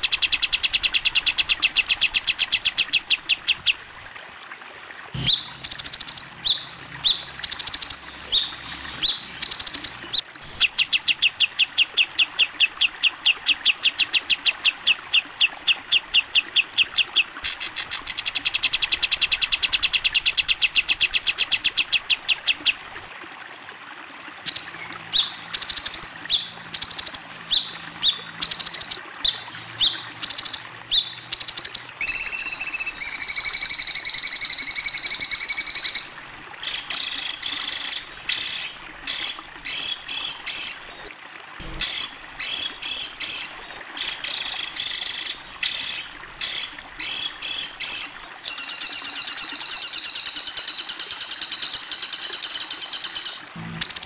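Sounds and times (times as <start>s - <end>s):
songbird singing: 5.2s - 22.8s, 24.5s - 41.0s.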